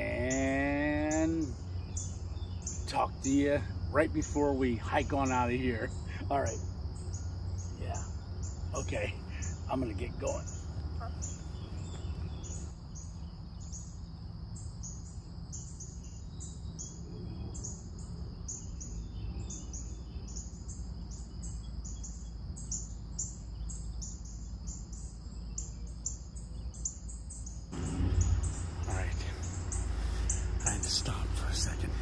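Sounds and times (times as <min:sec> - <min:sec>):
insect chirping: 0:00.0 - 0:32.0
low steady rumble: 0:27.7 - 0:32.0.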